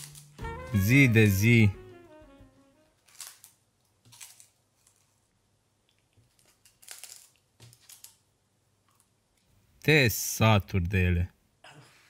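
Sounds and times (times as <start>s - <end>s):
rice cake crunching: 3.0s - 8.2s.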